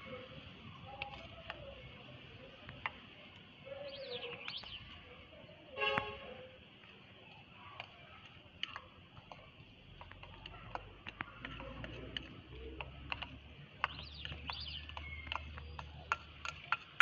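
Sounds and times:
bird chirps: 0:03.7 - 0:05.1, 0:13.8 - 0:16.8.

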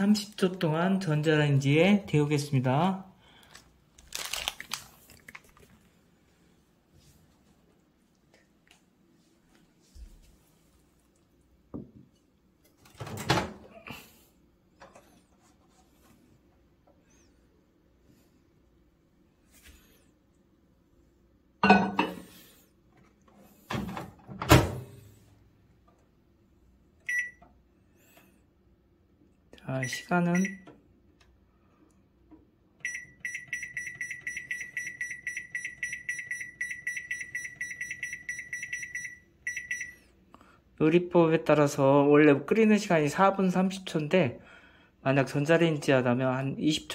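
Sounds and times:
microwave door clunk and rattle: 0:12.8 - 0:13.7, 0:23.7 - 0:25.0
microwave keypad beeping: 0:27.1 - 0:27.4, 0:29.8 - 0:30.8, 0:32.8 - 0:40.0.

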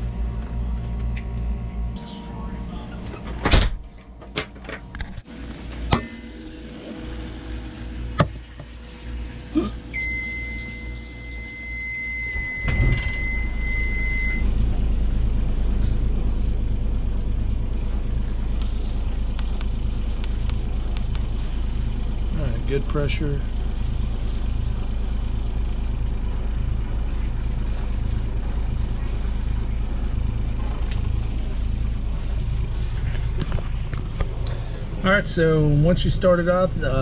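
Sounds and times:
diesel engine running: 0:00.0 - 0:37.0
alarm buzzer beeping: 0:09.9 - 0:14.5.

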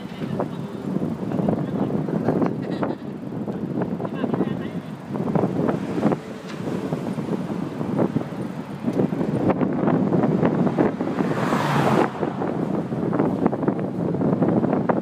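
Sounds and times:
wind buffeting microphone: 0:00.0 - 0:15.0
vehicle passing: 0:04.7 - 0:14.7.

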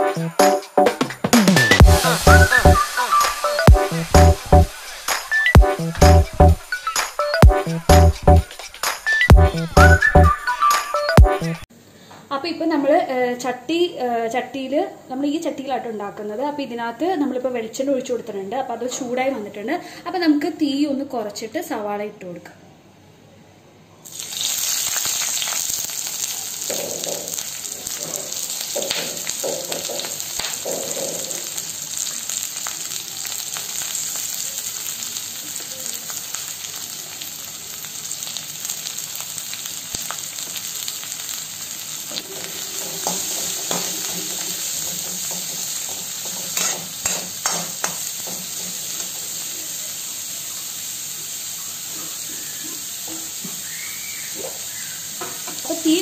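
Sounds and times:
onions sizzling in a pan: 0:01.7 - 0:07.1, 0:24.0 - 0:56.0.

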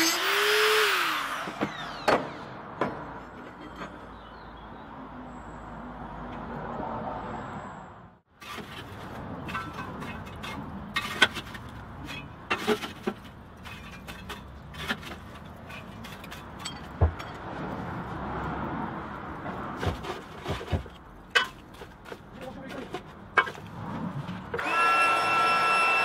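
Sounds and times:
charcoal clinking and scraping: 0:08.4 - 0:17.0.

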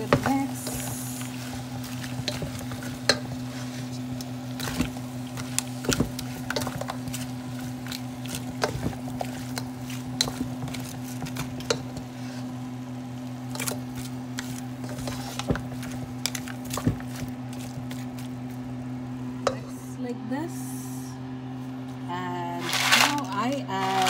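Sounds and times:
spoon stirring frying mixture: 0:00.0 - 0:12.6, 0:13.4 - 0:18.8
steady low hum: 0:00.0 - 0:24.0.

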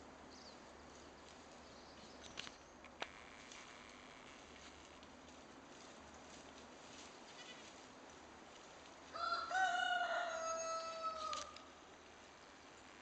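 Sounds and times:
rooster crowing: 0:09.1 - 0:11.7.

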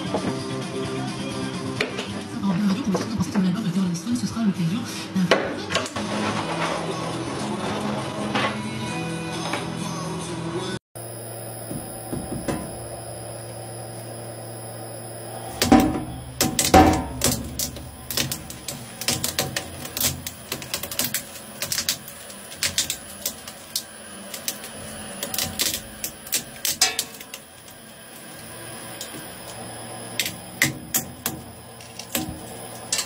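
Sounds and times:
shredder humming: 0:11.0 - 0:33.0
loud cracks of shredded mallet: 0:15.6 - 0:27.8
rapid irregular cracks and snaps: 0:15.6 - 0:33.0.

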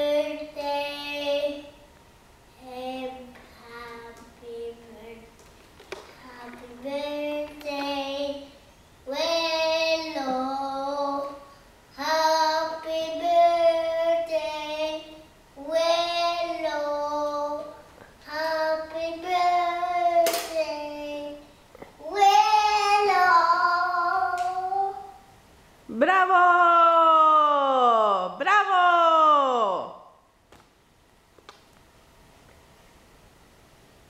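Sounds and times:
young boy singing: 0:00.0 - 0:01.7, 0:02.6 - 0:05.3, 0:06.2 - 0:08.5, 0:09.1 - 0:21.4, 0:22.0 - 0:25.2.

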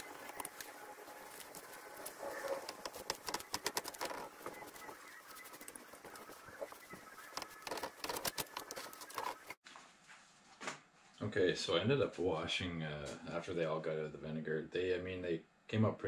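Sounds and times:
wire brush scraping metal: 0:00.0 - 0:09.6.

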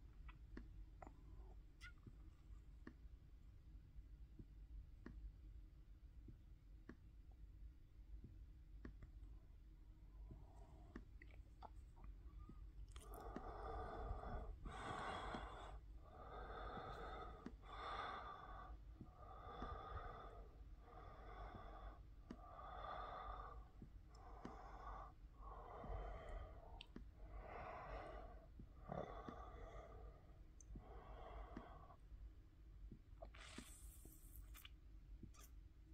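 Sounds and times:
faint breathing: 0:12.4 - 0:32.0.

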